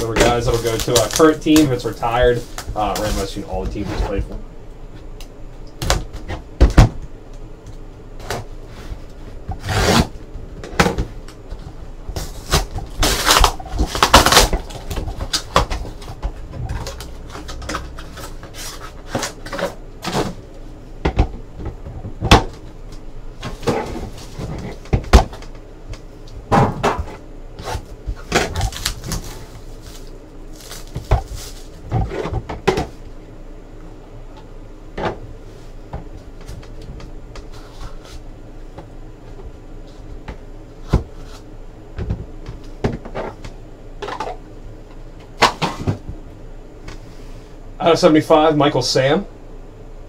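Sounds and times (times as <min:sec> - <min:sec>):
shrink-wrap crinkling: 0:00.0 - 0:03.8, 0:12.2 - 0:19.8, 0:27.7 - 0:32.0.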